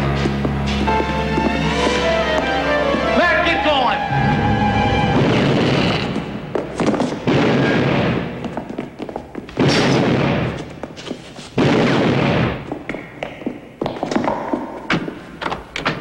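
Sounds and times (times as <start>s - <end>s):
gunshots: 5.2s - 8.5s, 9.5s - 10.8s, 11.5s - 12.7s.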